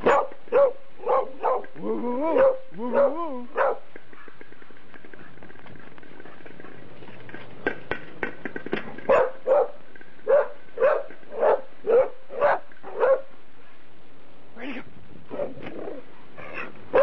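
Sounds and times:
dog barking: 0.0 - 1.7, 2.3 - 4.3, 9.1 - 13.3.

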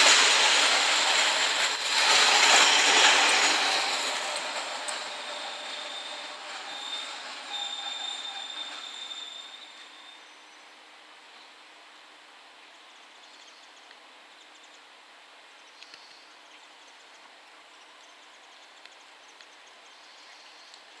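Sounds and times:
diesel train departing: 0.0 - 10.2
outdoor background hiss: 9.7 - 21.0
faint high-pitched ticks: 15.7 - 17.3, 18.7 - 21.0.

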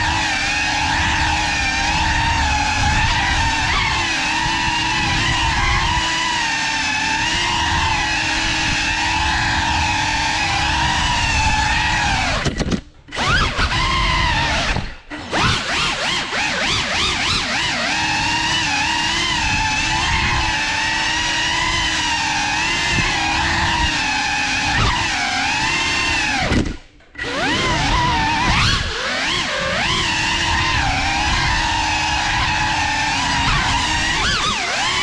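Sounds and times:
drone motors whining: 0.0 - 35.0.

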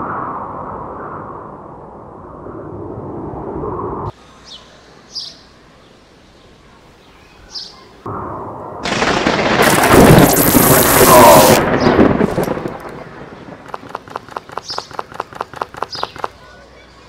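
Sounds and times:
low rushing wind-like noise: 0.0 - 9.0
thunder crack: 8.1 - 15.7
short bird chirps: 14.3 - 16.3.

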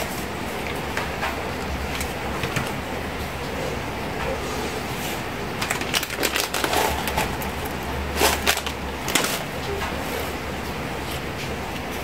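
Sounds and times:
paper and plastic clicks and crinkles: 0.6 - 2.8, 5.6 - 10.3.

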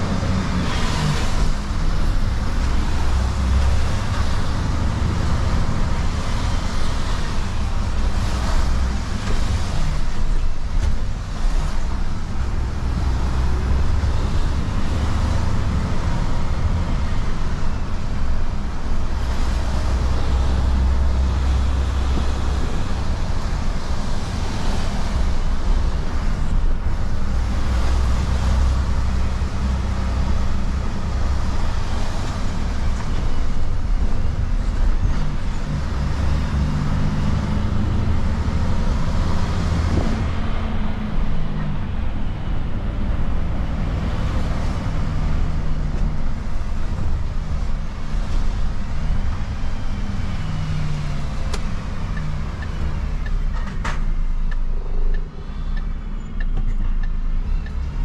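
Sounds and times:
tyres hissing on wet road: 0.0 - 41.4
truck engine low hum: 0.0 - 58.0.

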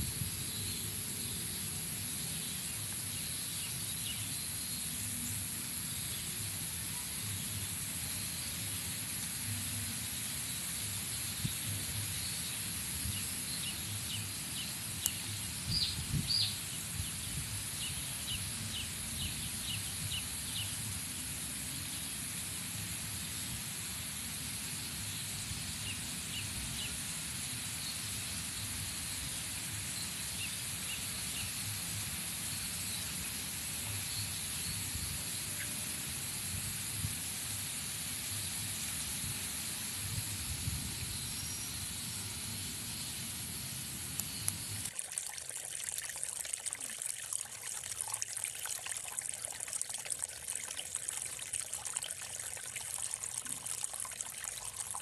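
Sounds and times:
steady high hiss: 0.0 - 55.0.

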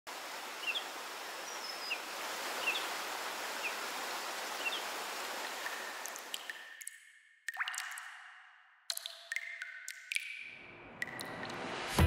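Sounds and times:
rushing stream water: 0.1 - 6.5
small birds chirping: 0.4 - 6.2.

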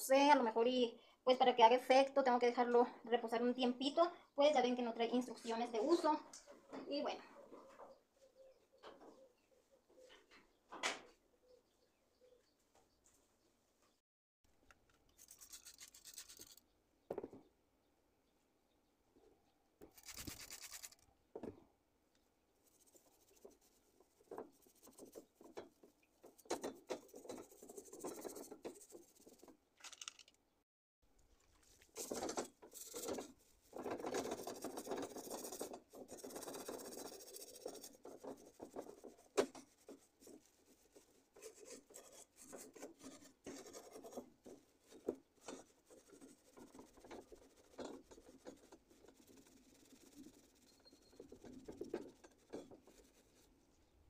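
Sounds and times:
steel wool scrubbing metal grates: 31.9 - 53.4.

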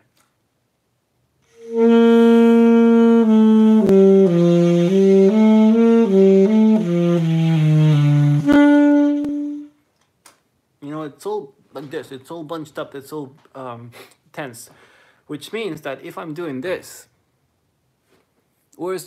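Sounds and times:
alto saxophone playing: 1.4 - 9.8.

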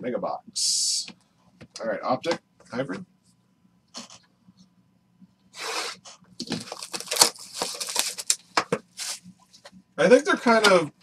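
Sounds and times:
foil packs tearing and crinkling: 6.4 - 9.2.

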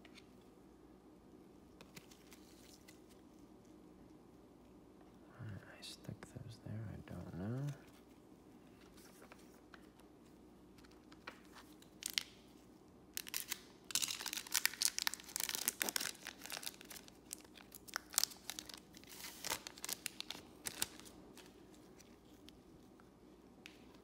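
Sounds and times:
foil wrapper crinkling and tearing: 11.8 - 12.4, 13.1 - 22.3.

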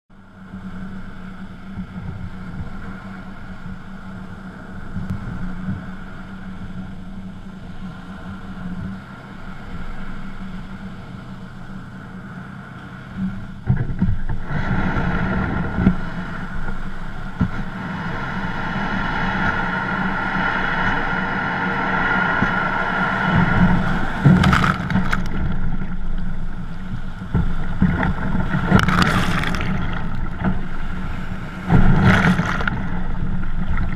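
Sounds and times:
water splashes: 0.4 - 33.9
wind buffeting microphone: 0.4 - 33.9
kayak hull scraping over sand: 12.1 - 33.9
breaking surf: 12.2 - 33.9.

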